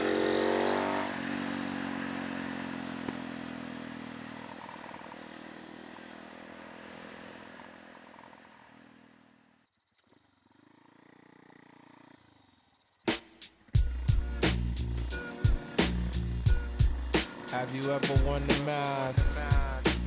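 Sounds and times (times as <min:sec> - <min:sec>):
wind and road noise: 0:00.0 - 0:09.5
motorcycle engine cruising: 0:00.0 - 0:20.0.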